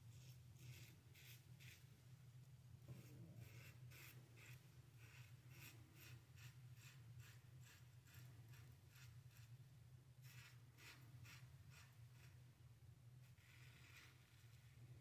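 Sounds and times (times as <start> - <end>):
razor scraping stubble: 0.2 - 1.8, 3.4 - 9.5.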